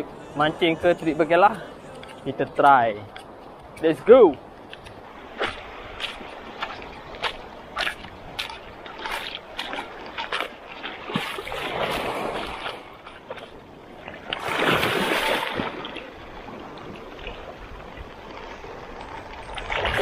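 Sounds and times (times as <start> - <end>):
footsteps splashing in water: 2.4 - 15.9.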